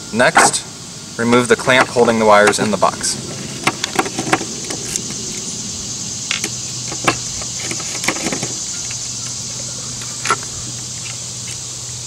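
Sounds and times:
steady hiss and hum: 0.0 - 12.0.

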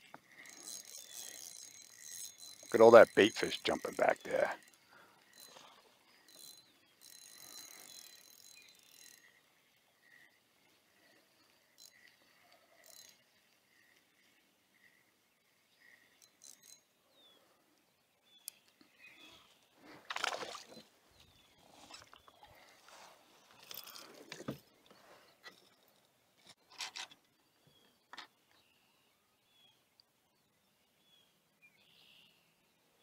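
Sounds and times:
faint bird chirps: 4.6 - 19.6, 27.3 - 33.0
fish splashing at water surface: 20.0 - 20.8.

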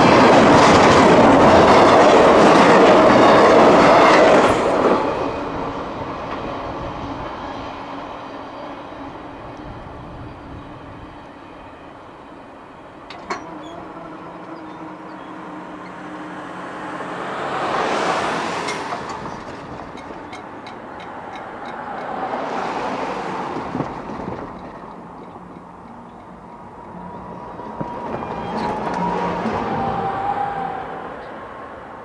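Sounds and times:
cars passing: 12.8 - 32.0.

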